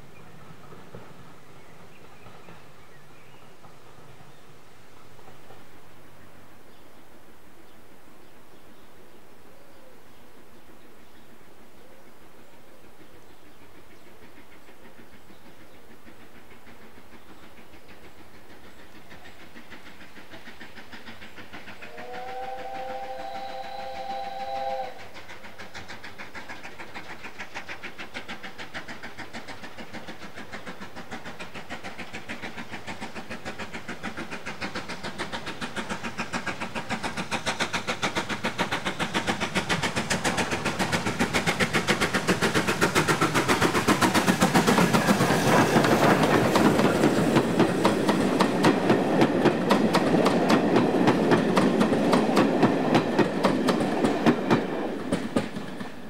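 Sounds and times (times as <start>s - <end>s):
steam train exhaust beats: 0.0s - 56.0s
steam whistle: 21.9s - 25.2s.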